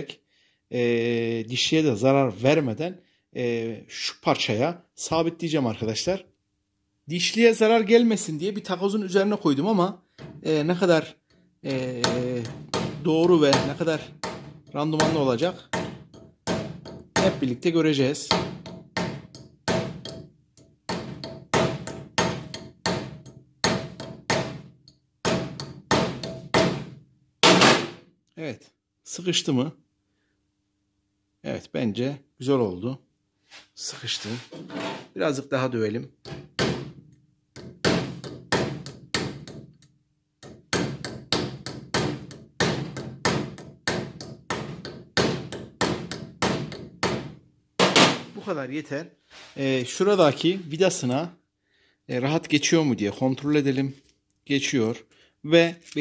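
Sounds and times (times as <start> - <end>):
hammer striking metal rivets: 12.0 - 17.5, 18.2 - 28.0, 36.2 - 48.3.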